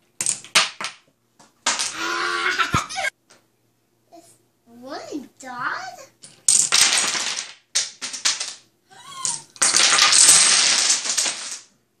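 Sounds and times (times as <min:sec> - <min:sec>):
dominoes clattering on wooden table: 0:00.2 - 0:01.0, 0:01.6 - 0:02.0, 0:06.2 - 0:11.8.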